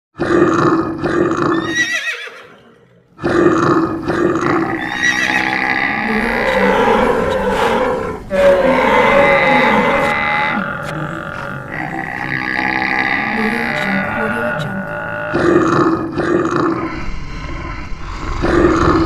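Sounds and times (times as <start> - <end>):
animal calls and roars: 0.2 - 19.0
horse whinnying: 1.5 - 2.8, 4.7 - 10.6.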